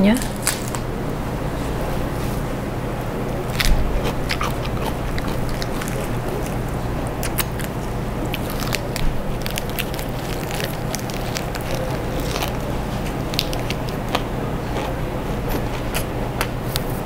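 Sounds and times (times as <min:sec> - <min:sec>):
steady low hum: 0:00.0 - 0:17.0
lettuce leaves crackling: 0:00.1 - 0:00.8, 0:03.5 - 0:15.0
person biting into wrap: 0:03.5 - 0:16.1.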